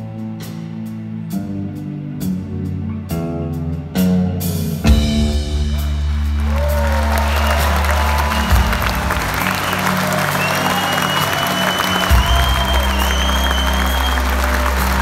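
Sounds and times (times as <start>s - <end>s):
audience applause: 5.8s - 15.0s.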